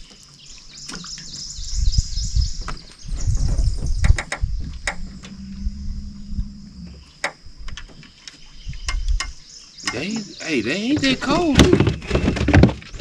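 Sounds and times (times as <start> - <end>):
knocks and thumps in boat: 2.4 - 5.0, 9.9 - 13.0.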